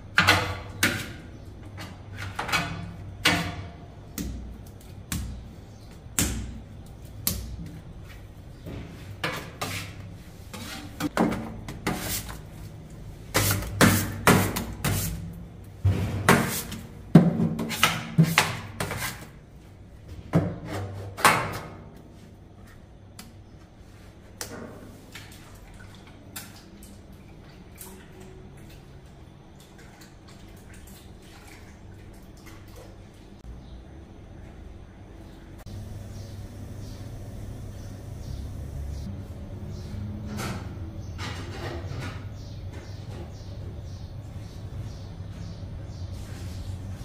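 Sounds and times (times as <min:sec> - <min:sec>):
knocks slaps and clatter of bakers: 0:00.1 - 0:10.1, 0:10.9 - 0:12.4, 0:13.3 - 0:19.3, 0:24.3 - 0:25.4
low steady hum: 0:25.1 - 0:47.0.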